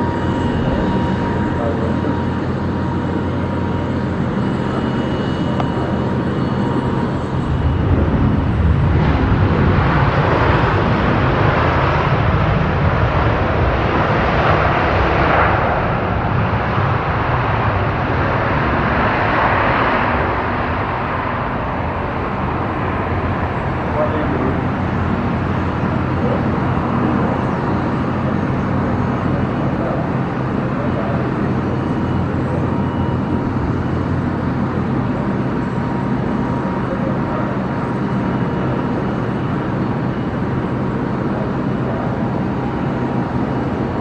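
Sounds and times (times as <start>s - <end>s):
jet engine rumble: 0.0s - 44.0s.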